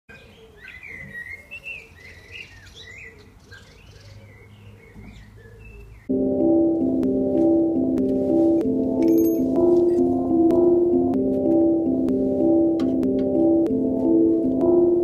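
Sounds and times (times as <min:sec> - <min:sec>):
small birds chirping: 0:00.1 - 0:06.1
music with chime-like notes: 0:06.1 - 0:12.8.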